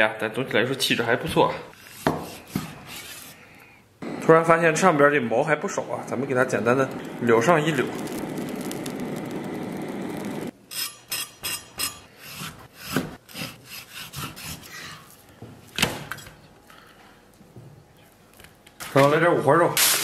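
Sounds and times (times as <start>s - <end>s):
gas torch hissing: 4.0s - 10.5s.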